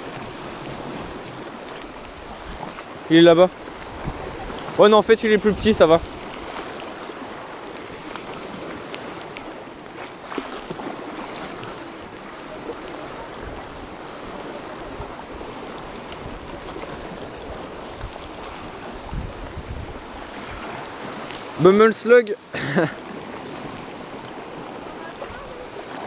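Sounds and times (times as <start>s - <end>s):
waves washing against rocks: 0.0s - 26.0s
wind buffeting microphone: 3.6s - 9.6s, 10.8s - 21.3s.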